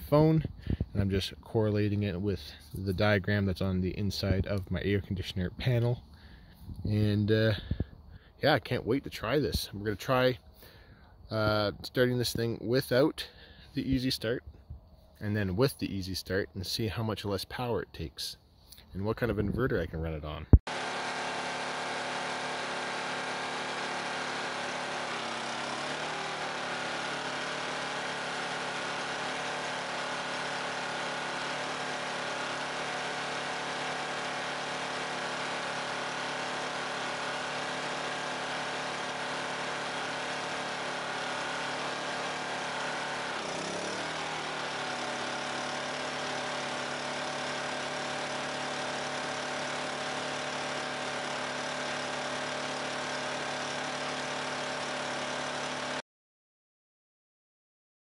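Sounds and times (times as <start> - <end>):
generator engine running: 0.0 - 8.6, 20.6 - 56.0.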